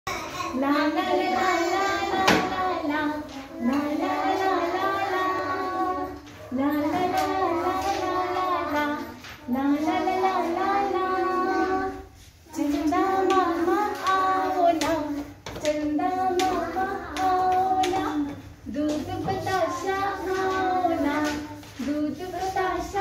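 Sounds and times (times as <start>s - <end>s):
children's song in high voices: 0.1s - 23.0s
hand claps: 13.2s - 19.1s.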